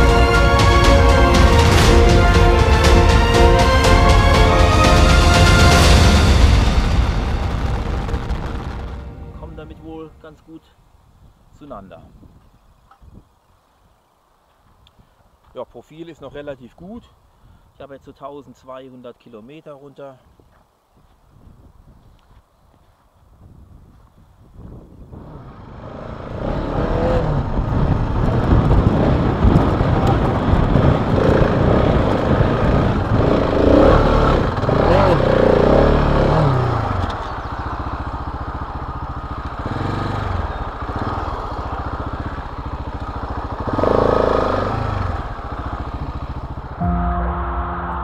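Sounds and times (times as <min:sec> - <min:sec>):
motorcycle engine on dirt track: 0:23.9 - 0:48.0.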